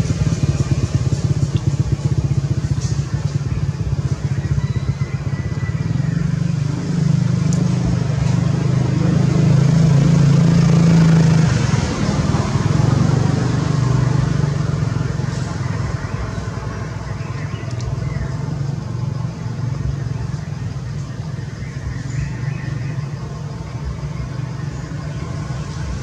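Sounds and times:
small engine running: 0:00.0 - 0:15.4.

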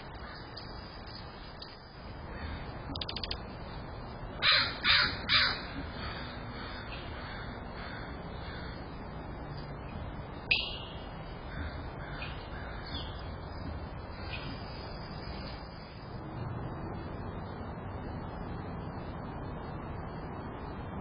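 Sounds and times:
crow calling harshly: 0:04.4 - 0:08.8, 0:11.5 - 0:13.2.

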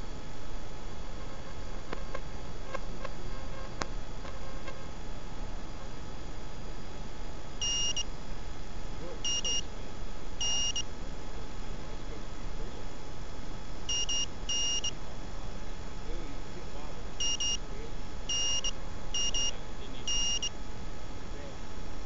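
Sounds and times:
high-pitched electronic beeps: 0:07.6 - 0:08.1, 0:09.2 - 0:09.7, 0:10.4 - 0:10.9, 0:13.9 - 0:15.0, 0:17.2 - 0:17.6, 0:18.3 - 0:20.5.

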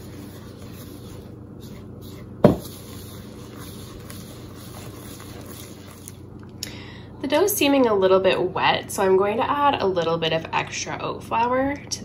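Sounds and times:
spoon stirring dough in a bowl: 0:00.0 - 0:06.3.

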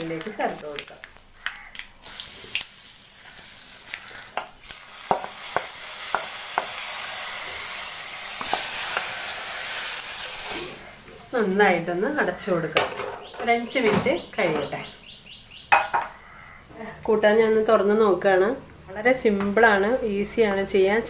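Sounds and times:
hot oil sizzling: 0:00.0 - 0:12.8.

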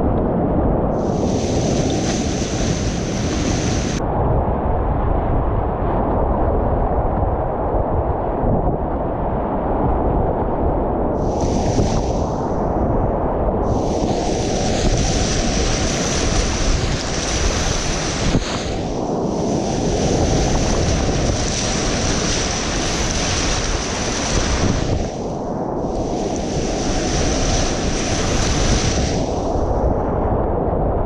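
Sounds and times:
wind buffeting microphone: 0:00.0 - 0:31.0
whitewater rushing: 0:01.0 - 0:04.0, 0:11.2 - 0:12.6, 0:13.7 - 0:25.3, 0:25.9 - 0:29.7.

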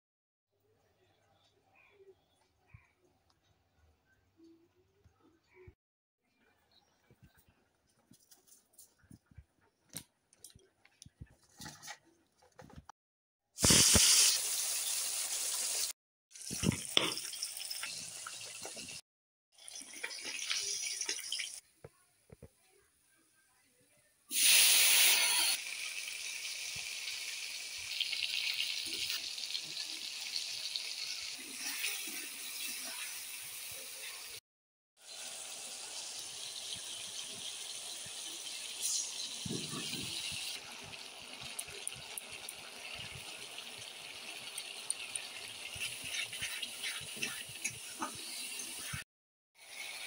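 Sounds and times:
food sizzling in oil: 0:13.6 - 0:19.0, 0:19.6 - 0:21.6, 0:24.3 - 0:34.4, 0:35.0 - 0:50.0.

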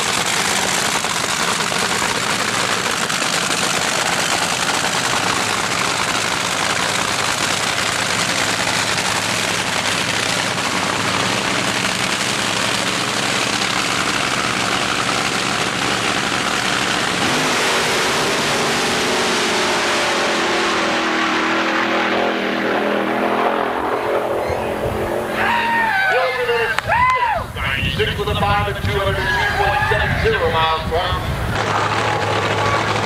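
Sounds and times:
racing car engine roaring: 0:00.0 - 0:33.0.

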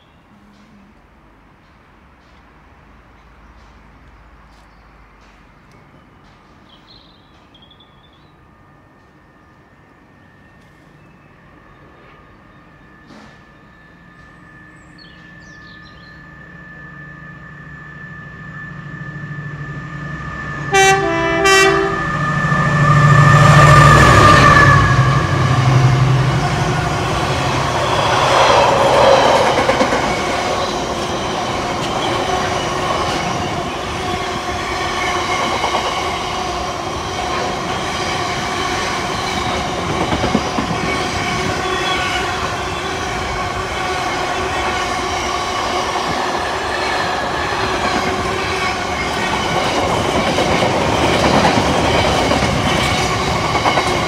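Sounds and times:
locomotive engine passing: 0:15.0 - 0:54.0
wagons rumbling over rails: 0:17.8 - 0:54.0
train horn: 0:20.5 - 0:29.4.

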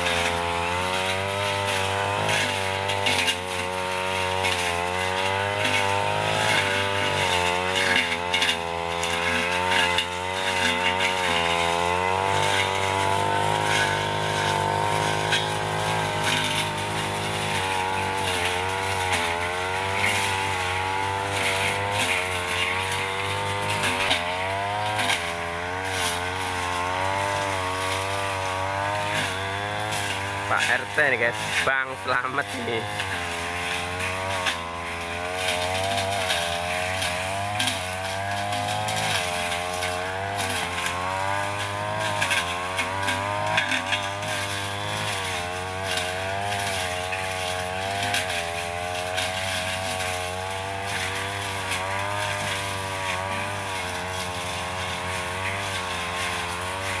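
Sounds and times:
blade cutting undergrowth: 0:00.0 - 0:57.0
brush cutter engine at high speed: 0:00.0 - 0:57.0.

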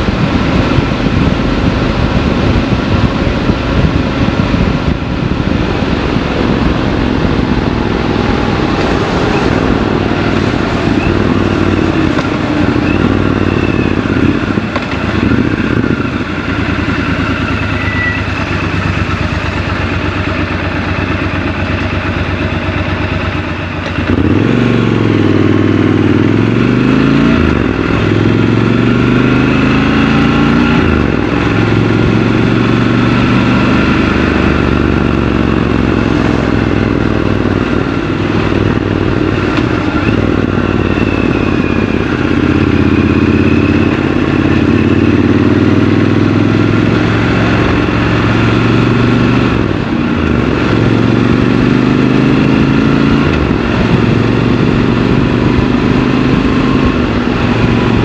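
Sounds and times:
motorcycle revving through gears: 0:00.0 - 0:58.0
motorcycle engine idling: 0:09.6 - 0:24.1.

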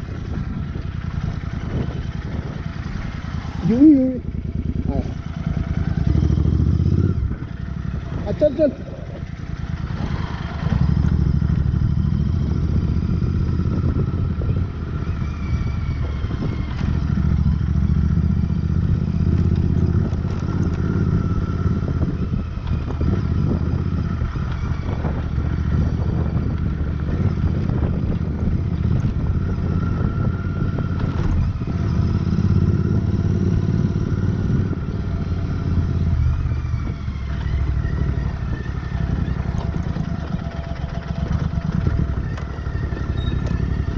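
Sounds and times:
motorcycle engine running: 0:00.0 - 0:43.9.

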